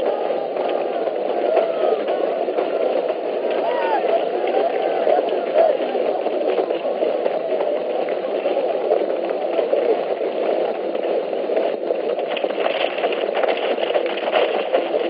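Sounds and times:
sharp clatters: 0:10.9 - 0:15.0.

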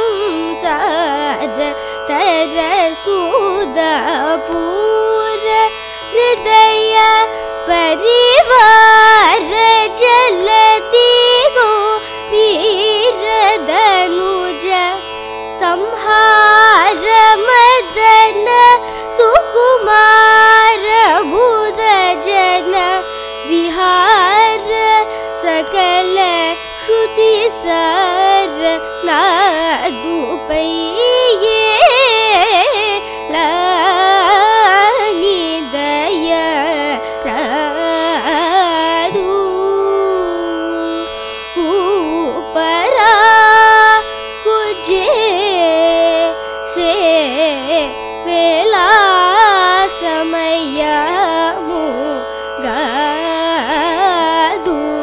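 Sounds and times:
girl singing ornamented phrases: 0:00.0 - 0:55.0
steady drone: 0:00.1 - 0:35.3.

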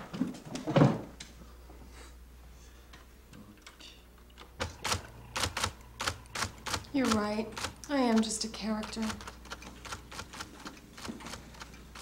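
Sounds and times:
low steady hum: 0:00.0 - 0:12.0
electric typewriter keys clacking: 0:04.6 - 0:12.0.

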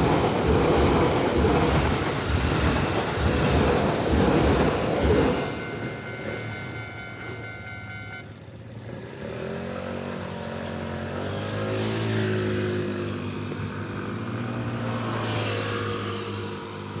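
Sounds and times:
train clattering past: 0:00.0 - 0:08.0
level crossing warning bells: 0:00.0 - 0:08.9
car engines pulling away: 0:00.0 - 0:17.0.

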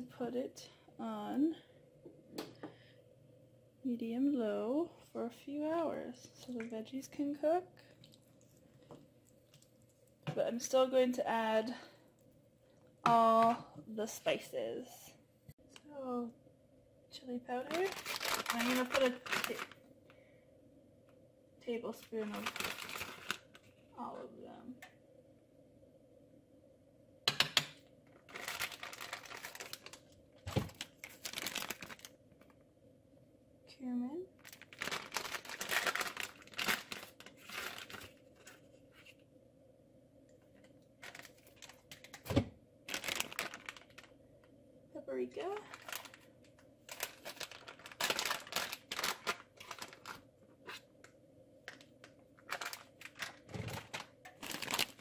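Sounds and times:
plastic bag rustling: 0:17.5 - 0:19.8, 0:21.9 - 0:23.8, 0:28.2 - 0:32.5, 0:34.4 - 0:39.2, 0:41.0 - 0:44.2, 0:45.2 - 0:50.9, 0:51.6 - 0:55.0.

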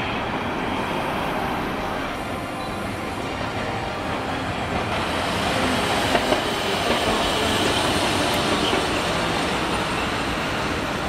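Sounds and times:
road traffic: 0:00.0 - 0:11.0
streetcar rumbling: 0:00.0 - 0:11.0
sharp clacks of streetcar: 0:02.4 - 0:11.0.

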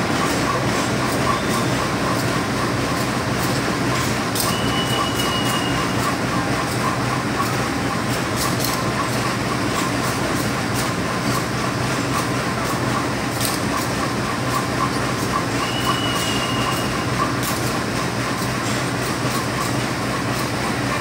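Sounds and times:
train coaches rumbling past: 0:00.0 - 0:21.0
high wheel squeal: 0:00.2 - 0:02.0, 0:04.4 - 0:06.4, 0:14.6 - 0:17.2.

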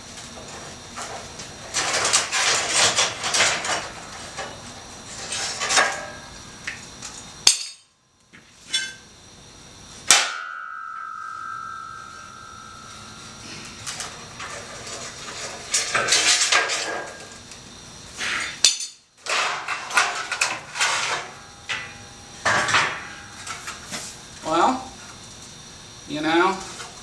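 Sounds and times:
ringing metal clang: 0:07.5 - 0:08.0, 0:10.1 - 0:16.2, 0:21.3 - 0:23.9.

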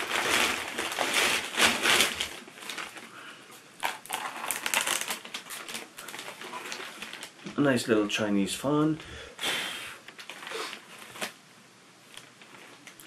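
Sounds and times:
plastic bag rustling: 0:00.0 - 0:07.8, 0:10.0 - 0:11.4, 0:12.0 - 0:13.0.

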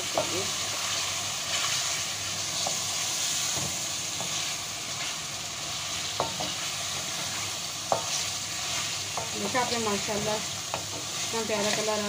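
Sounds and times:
chicken sizzling in hot oil: 0:00.0 - 0:12.0
spatula scraping and knocking pan: 0:06.0 - 0:12.0.

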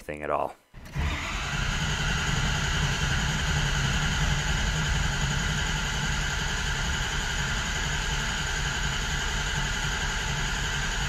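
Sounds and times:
diesel engine starter cranking: 0:00.8 - 0:06.6.

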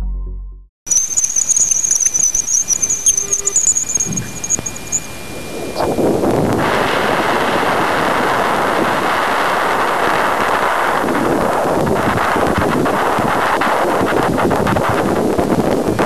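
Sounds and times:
high wavering whistle: 0:00.9 - 0:06.0
static-like rush: 0:00.9 - 0:16.0.

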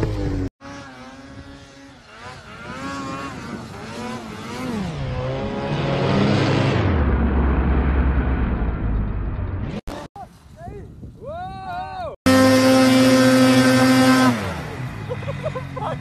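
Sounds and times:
snowmobile engine revving: 0:00.0 - 0:08.2, 0:12.3 - 0:16.0.

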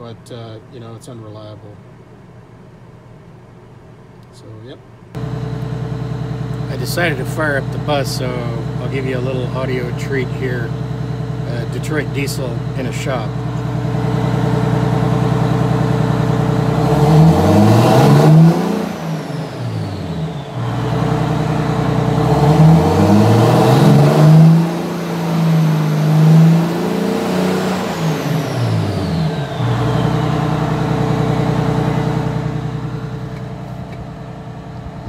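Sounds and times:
faint high whine: 0:00.0 - 0:17.1
diesel bus engine idling and revving: 0:04.4 - 0:35.0.

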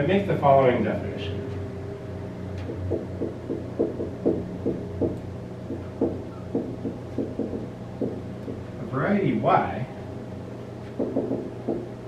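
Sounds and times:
low hum: 0:00.0 - 0:12.0
marker writing on whiteboard: 0:02.9 - 0:08.6.

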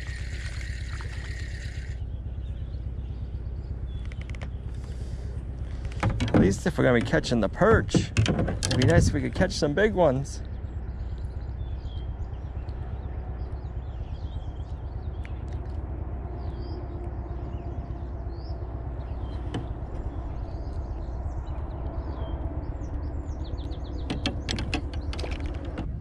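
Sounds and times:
small birds chirping: 0:00.0 - 0:26.0
wind rumble on microphone: 0:00.0 - 0:26.0
sharp clicks: 0:03.9 - 0:05.0, 0:23.6 - 0:25.9.

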